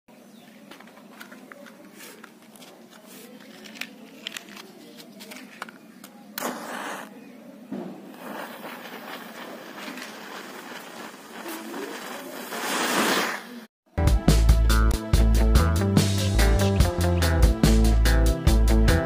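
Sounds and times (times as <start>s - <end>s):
fuse burning with hiss: 6.4s - 7.2s, 7.8s - 13.7s
match striking and flaring: 6.4s - 7.2s, 8.0s - 13.7s.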